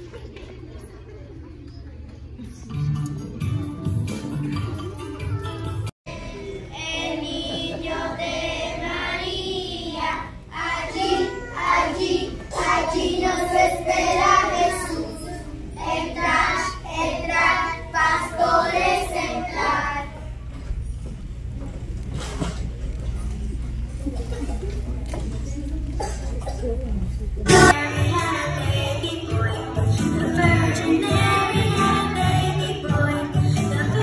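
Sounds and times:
young children singing: 6.1 - 20.4, 27.5 - 34.0.

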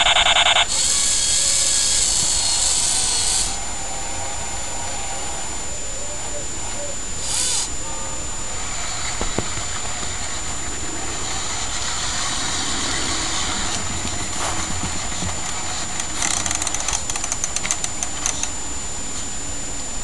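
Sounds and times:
engine-like running sound: 0.0 - 20.0
quick run of clicks: 13.6 - 18.6.

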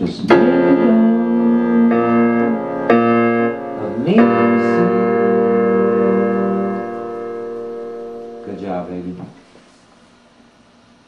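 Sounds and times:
electronic keyboard piano chords: 0.0 - 9.2.

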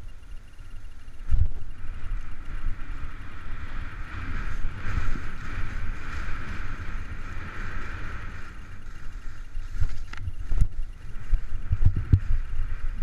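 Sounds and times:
wind buffeting microphone: 0.0 - 13.0
skis scraping over snow: 3.6 - 13.0.

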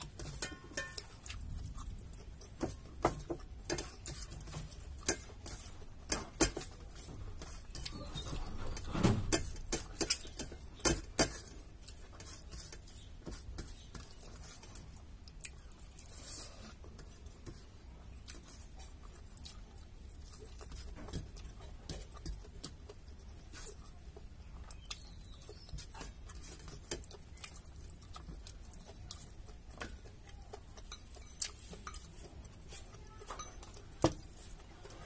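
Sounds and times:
chewing: 0.0 - 8.8, 9.4 - 35.0
fingers mixing rice on metal plate: 0.0 - 35.0.

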